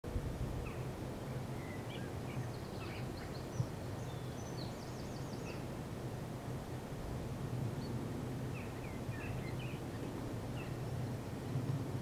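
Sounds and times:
small birds chirping: 0:00.6 - 0:00.9, 0:01.5 - 0:05.7, 0:07.8 - 0:11.0.

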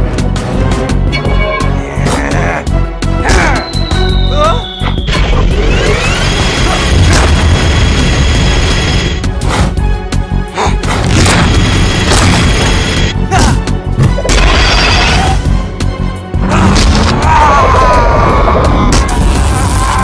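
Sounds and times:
cartoon action music: 0:00.4 - 0:20.0
booming impacts and crashes: 0:05.1 - 0:09.8, 0:10.8 - 0:13.2, 0:16.4 - 0:20.0.

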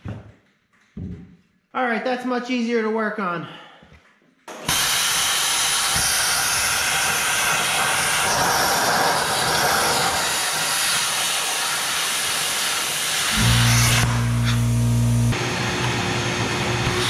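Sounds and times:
plasma cutter hissing: 0:04.5 - 0:15.4.

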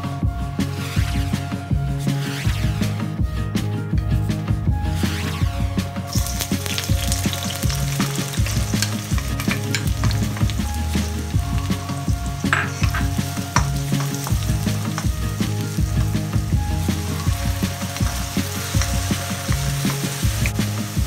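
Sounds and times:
background music: 0:00.0 - 0:21.0
onions sizzling in hot oil: 0:06.1 - 0:21.0.

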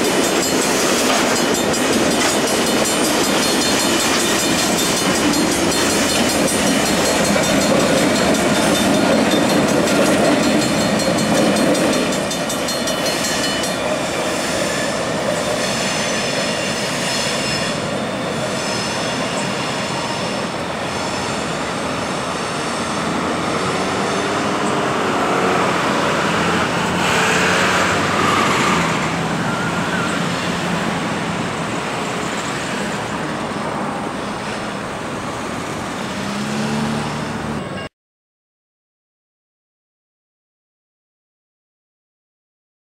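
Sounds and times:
train cars rolling on rails: 0:00.0 - 0:37.8
diesel locomotive engine: 0:00.0 - 0:37.9.

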